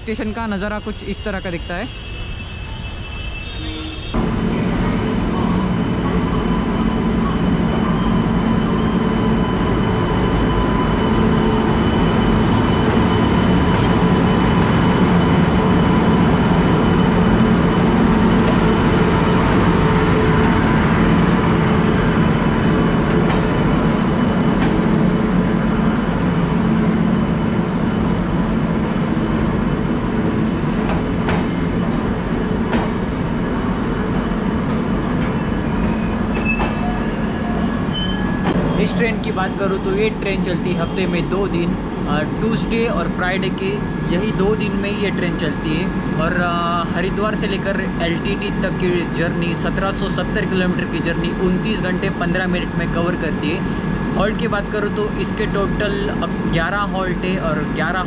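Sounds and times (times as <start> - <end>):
locomotive hum: 0.0 - 58.0
train rumbling past: 0.0 - 58.0.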